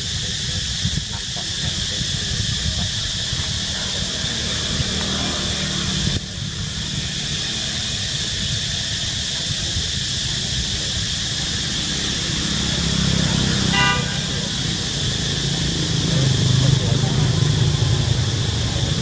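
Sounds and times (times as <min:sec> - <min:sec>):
high hiss: 0:00.0 - 0:19.0
short pitched toot: 0:13.7 - 0:14.3.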